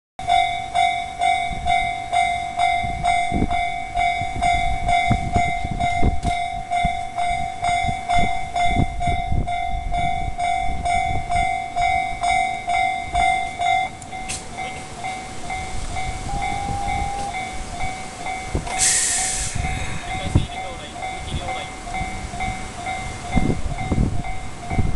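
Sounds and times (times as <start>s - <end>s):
level crossing alarm ringing: 0.2s - 24.9s
air hiss: 18.7s - 20.2s.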